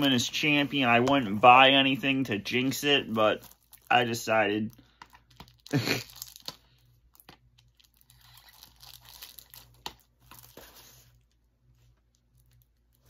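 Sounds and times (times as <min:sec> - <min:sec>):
packaging tearing and crinkling: 0:03.0 - 0:04.5, 0:05.1 - 0:11.0.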